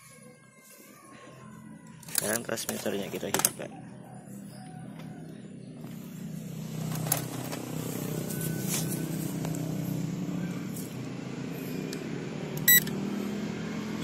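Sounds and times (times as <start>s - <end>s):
vehicle engine running: 3.7s - 14.0s.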